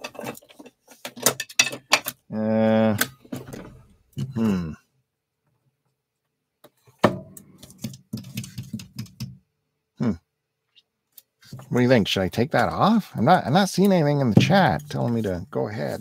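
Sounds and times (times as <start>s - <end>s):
short wordless vocal sounds: 2.3s - 3.0s, 4.2s - 4.9s
handling clicks and knocks: 6.6s - 9.4s, 13.8s - 16.0s.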